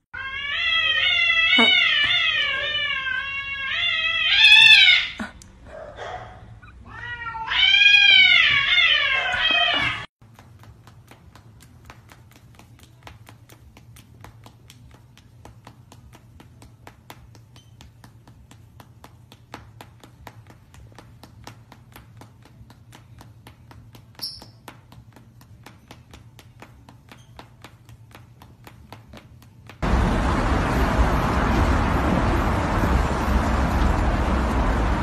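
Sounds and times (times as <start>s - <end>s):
cat yowling: 0.1s - 5.2s, 6.6s - 10.1s
low hum: 29.8s - 35.0s.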